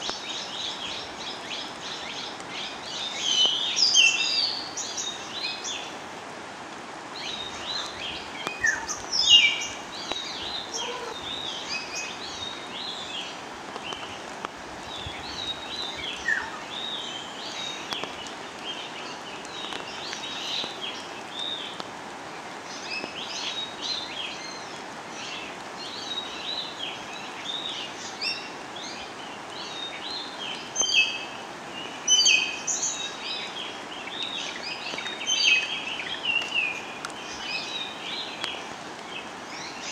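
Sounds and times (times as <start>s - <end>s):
steady background hiss: 0.0s - 39.9s
birds chirping: 7.1s - 21.8s.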